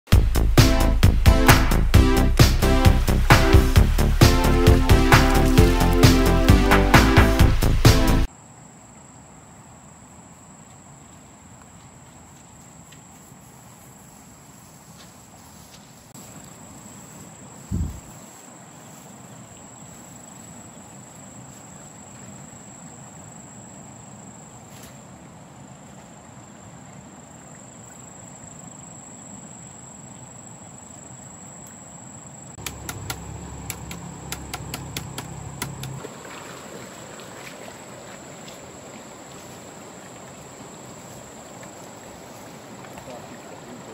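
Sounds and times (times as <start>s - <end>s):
insect drone: 1.6s - 43.9s
rapid clicks and knocks: 32.6s - 36.0s.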